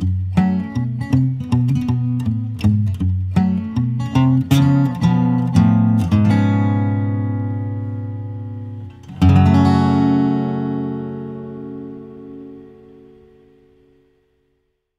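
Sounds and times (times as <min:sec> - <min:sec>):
acoustic guitar strummed chords: 0:00.0 - 0:14.6.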